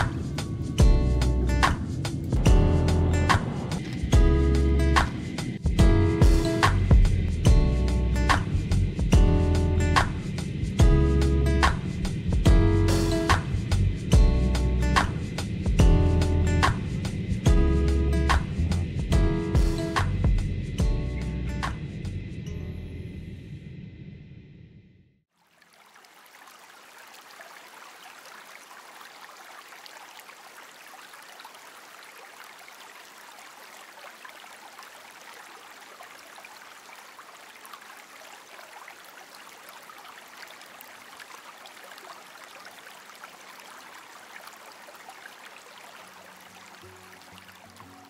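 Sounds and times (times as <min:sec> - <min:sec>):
background music: 0:00.0 - 0:23.4
water trickling over stone steps: 0:25.3 - 0:48.0.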